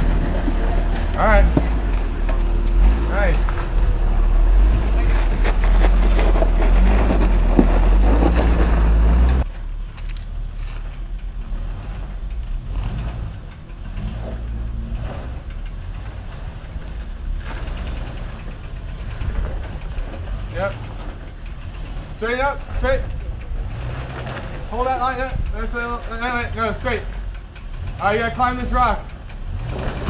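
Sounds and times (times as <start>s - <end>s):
vehicle engine rumbling: 0.0s - 30.0s.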